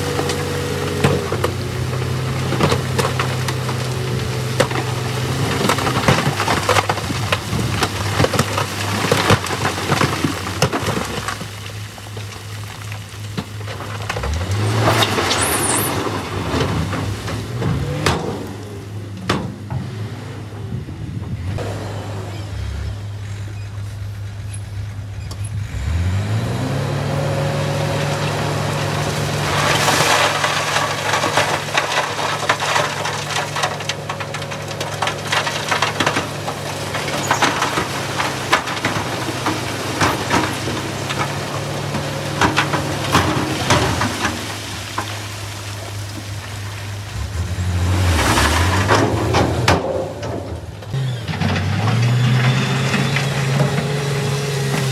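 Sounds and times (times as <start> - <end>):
diesel truck engine revving: 0.0 - 11.4, 13.7 - 54.9
rock clattering onto a pile: 29.4 - 45.1.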